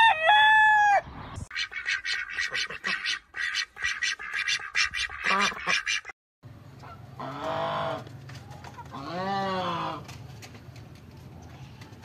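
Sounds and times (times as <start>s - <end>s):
goose honk: 1.6s - 6.1s.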